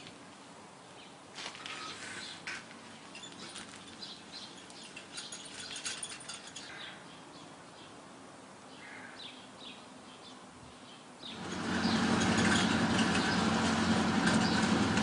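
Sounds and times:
small birds chirping: 0.8 - 14.8
road noise rushing: 11.2 - 15.0
vehicle engine hum: 11.2 - 15.0.

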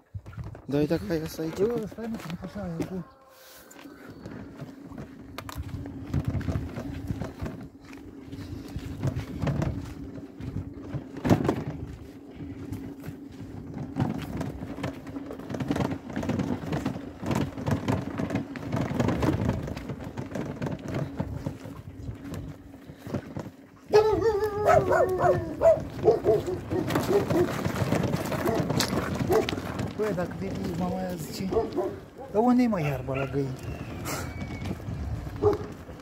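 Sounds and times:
crunching footsteps in dry brush: 0.0 - 36.0
steady low hum: 3.8 - 32.6.

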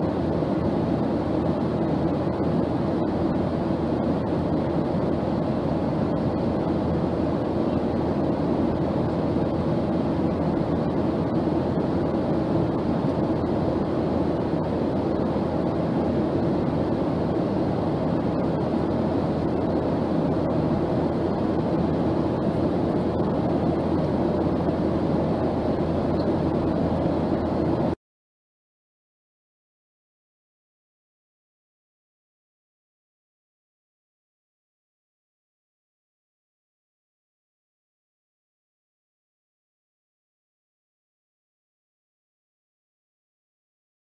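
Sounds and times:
airplane drone: 0.0 - 28.0.

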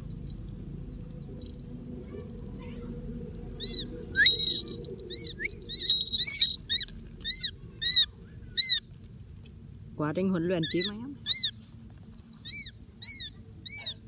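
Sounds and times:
low steady rumble: 0.0 - 14.0
bird calling with high notes: 3.6 - 8.9, 10.6 - 11.6, 12.4 - 14.0.

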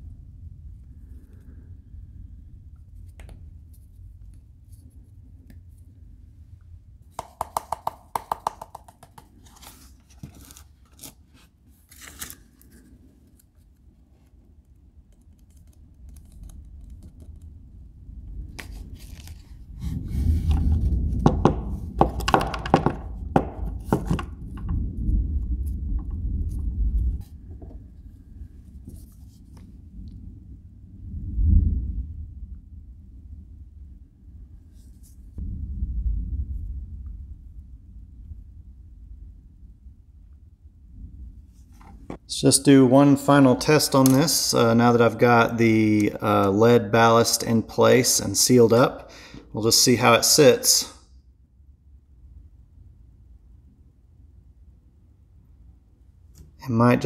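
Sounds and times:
sharp taps: 7.2 - 9.3
rubbing and scraping with knocks: 18.6 - 24.8.

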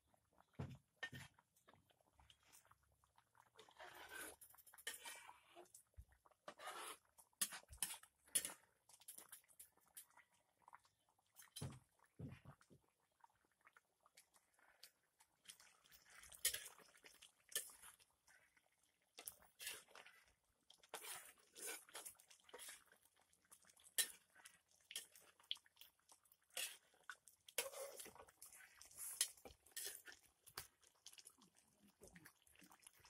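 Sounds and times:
spoon scraping metal pan: 3.6 - 5.4, 6.4 - 8.6, 16.3 - 16.8, 19.5 - 20.0, 20.9 - 22.9, 26.6 - 27.0, 27.6 - 30.1.

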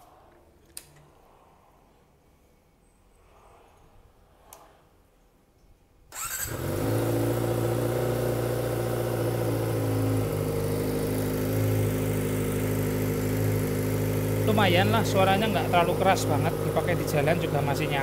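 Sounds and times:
motorcycle engine starting and idling: 6.1 - 18.0.

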